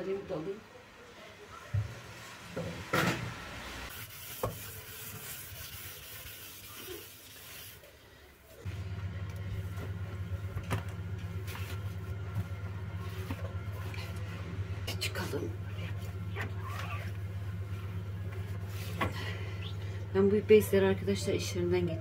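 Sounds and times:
low machine hum: 8.6 - 22.0.

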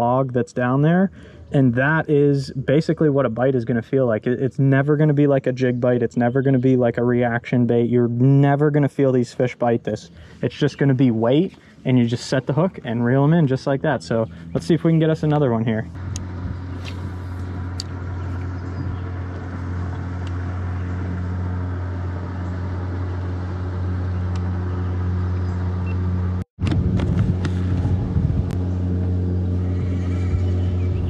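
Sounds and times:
boat motor humming: 8.1 - 31.0.

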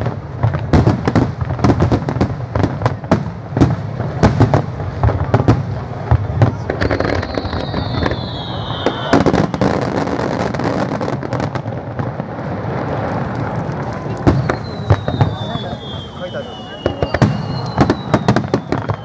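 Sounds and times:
fireworks bursting: 0.0 - 19.0
firework whistle sliding down: 6.8 - 10.1, 13.8 - 19.0.

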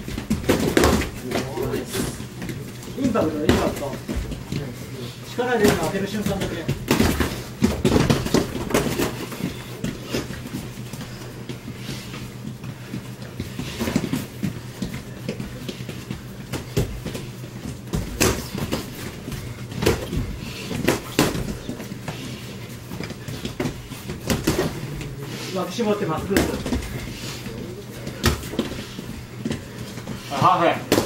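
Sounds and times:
boxing gloves thudding: 0.0 - 1.7, 5.6 - 10.3, 16.5 - 22.2, 23.0 - 24.9
steady low hum: 0.0 - 31.0.

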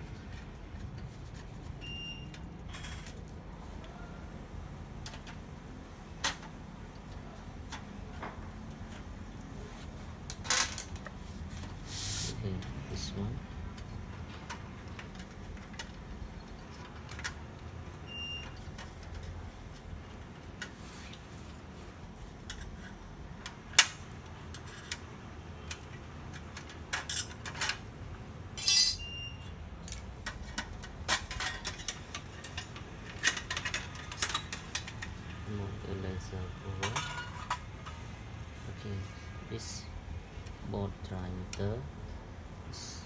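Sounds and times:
metal bar clinking: 28.6 - 29.1.

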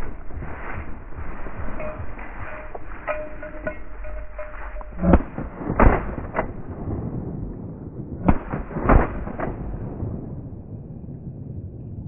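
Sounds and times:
steady hiss: 0.0 - 5.1
shotgun shots: 5.0 - 7.0, 8.2 - 9.9.

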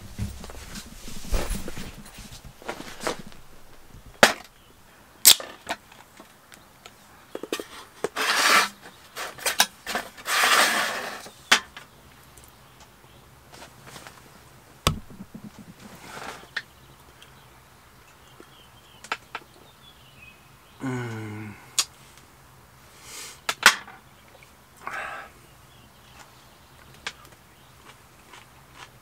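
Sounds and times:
dull thump: 0.0 - 4.5, 14.9 - 16.3
metal tray and can knocking: 14.9 - 16.3.

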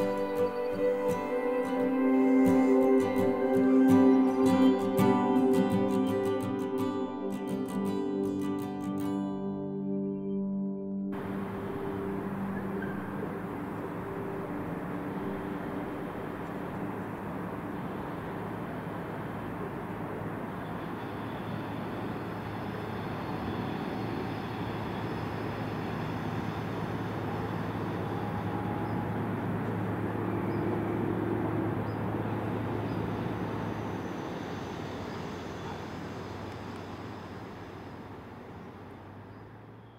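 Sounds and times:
diesel locomotive engine drone: 0.0 - 39.9.

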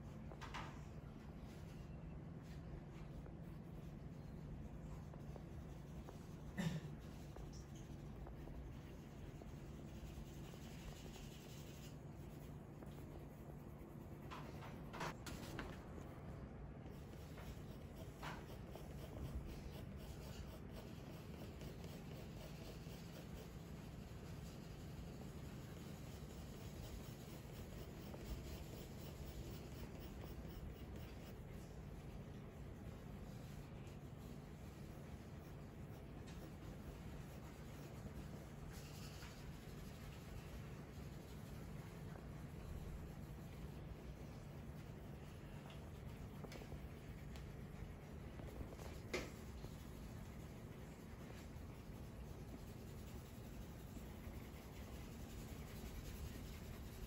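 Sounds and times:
low room hum: 0.0 - 57.0
pencil scratching on paper: 1.2 - 15.7, 16.8 - 57.0.

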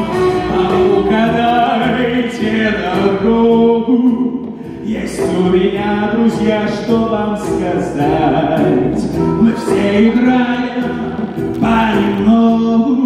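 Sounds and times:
voices singing long notes: 0.0 - 3.0.

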